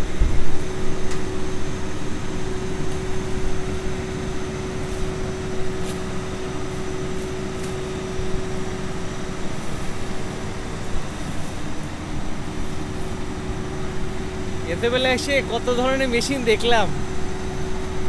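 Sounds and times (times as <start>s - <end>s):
forklift humming whine and rumble: 0.0s - 18.0s.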